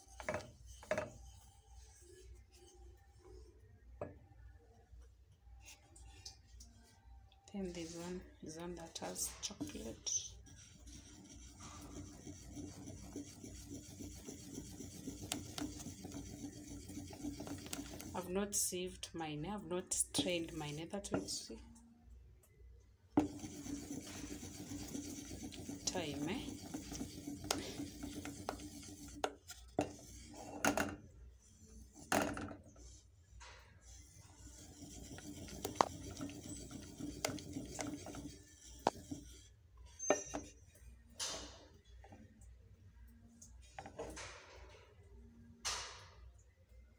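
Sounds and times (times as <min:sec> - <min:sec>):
spoon scraping metal bowl: 0:08.8 - 0:18.3, 0:20.0 - 0:21.5, 0:23.2 - 0:33.0, 0:33.8 - 0:40.6.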